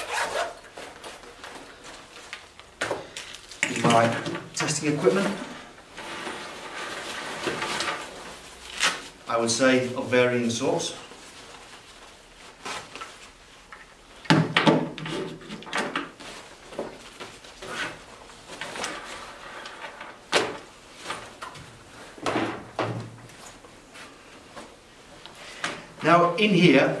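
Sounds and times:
pouch rustling: 0.0 - 4.0.

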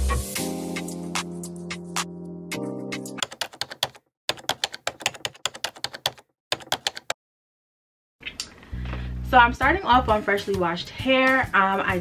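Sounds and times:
intro music with held notes: 0.0 - 3.2
keyboard typing clicks: 3.2 - 7.2.

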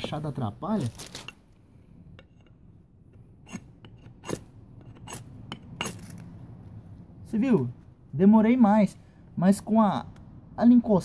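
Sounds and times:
metal scraping fire-starter rod: 3.4 - 6.2.

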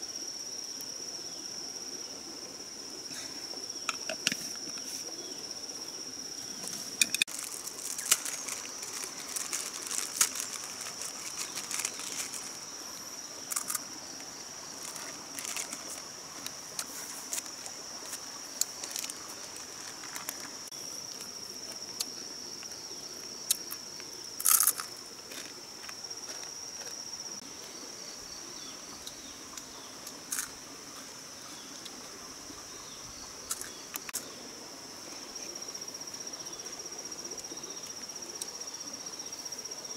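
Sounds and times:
insects chirring: 0.0 - 39.9
clicks and crinkles of handling: 6.6 - 12.7, 14.8 - 21.8.

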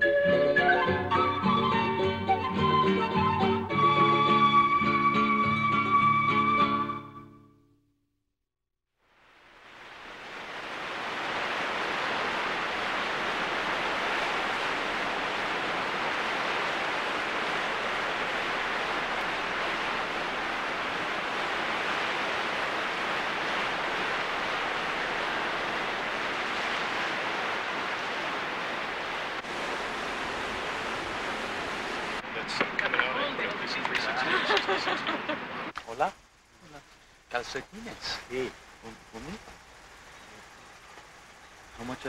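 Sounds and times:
river water rushing: 9.1 - 42.0.

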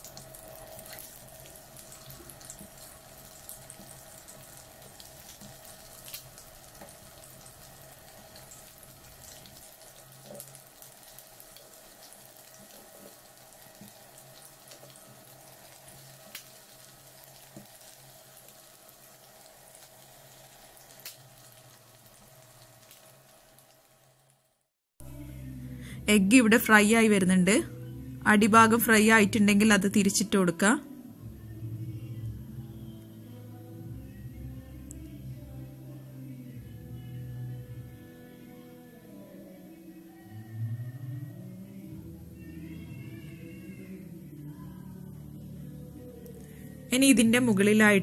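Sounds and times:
eggs sizzling in hot oil: 0.0 - 24.7.

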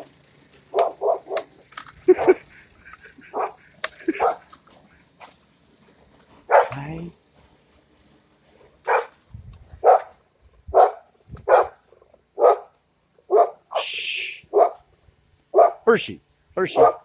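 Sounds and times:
dog barking: 0.7 - 1.5, 3.2 - 4.4, 6.5 - 6.8, 8.9 - 9.2, 9.8 - 11.8, 12.4 - 12.7, 13.3 - 13.6, 14.5 - 14.8, 15.5 - 15.9, 16.7 - 17.0.

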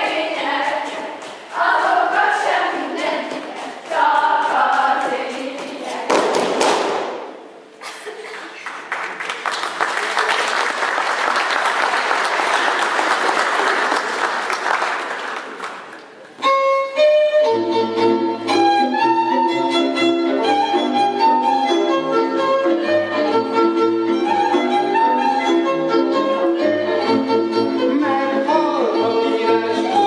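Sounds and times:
girls singing folk song: 0.0 - 6.5, 27.8 - 30.0
crowd applauding: 8.2 - 16.4
fiddle music: 16.4 - 30.0.

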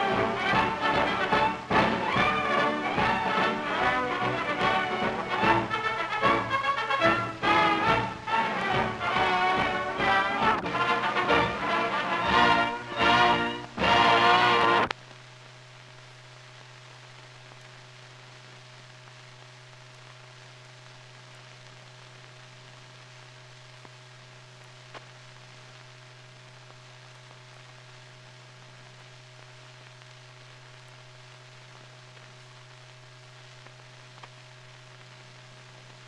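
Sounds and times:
film hiss and low hum: 0.0 - 36.0
faint clicks: 33.6 - 34.4.

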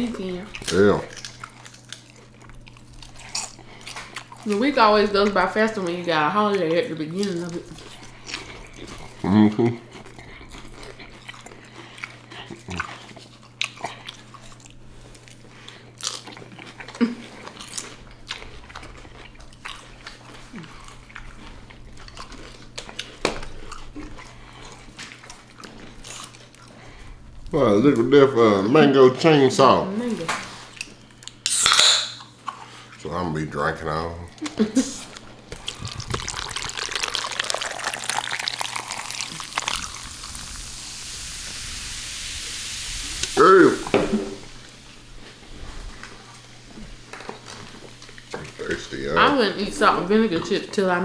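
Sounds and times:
chewing sandwich: 0.0 - 5.4, 6.0 - 28.0, 32.1 - 33.1, 34.3 - 41.2, 44.6 - 49.2
low steady hum: 0.0 - 51.0
potato chips crunching: 0.5 - 5.4, 15.2 - 26.7, 35.1 - 40.6
wet mouth sounds: 35.0 - 41.8
steady hiss: 38.9 - 47.2.

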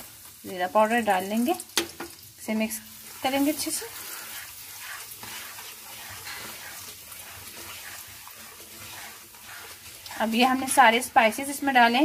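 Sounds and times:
spices sizzling in hot oil: 0.0 - 12.0
wooden spoon scraping pan: 3.0 - 12.0.

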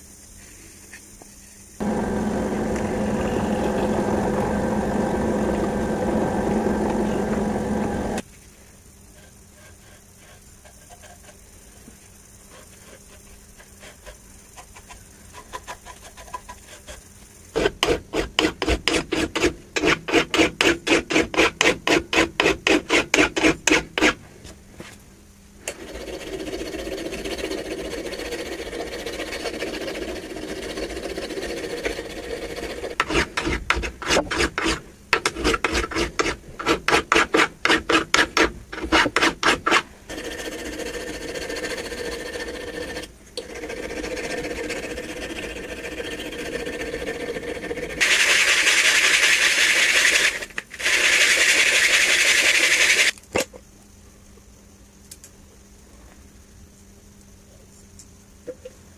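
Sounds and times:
file rasping on steel: 17.6 - 24.2, 25.8 - 53.1.

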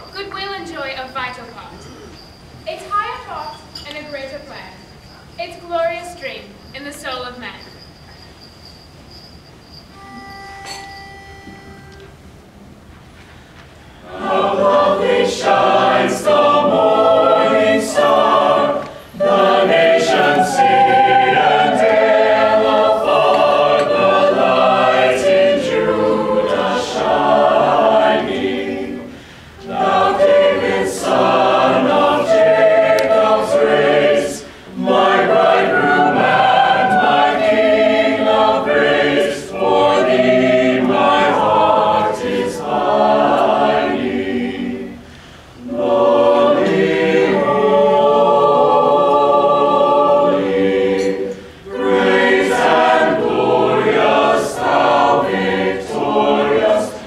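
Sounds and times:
choir singing unaccompanied: 13.9 - 57.0.

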